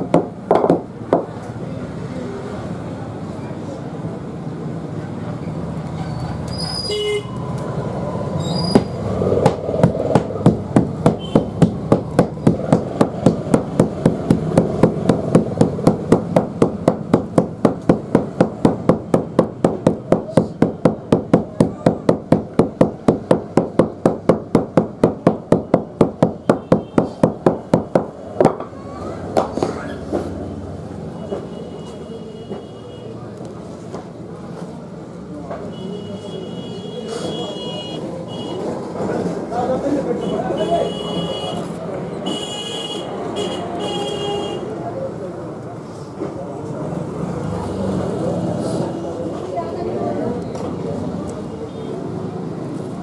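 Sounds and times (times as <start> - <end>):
wooden mallet pounding dough: 0.0 - 1.3, 8.8 - 28.7.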